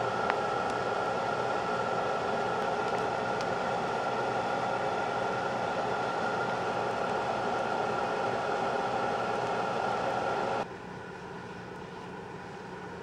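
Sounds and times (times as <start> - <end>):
electric blower whirring hum: 0.0 - 10.7.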